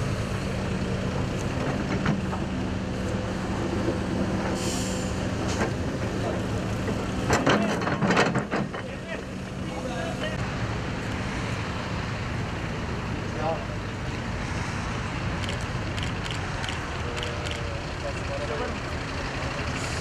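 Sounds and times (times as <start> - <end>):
brief hiss: 4.5 - 5.6.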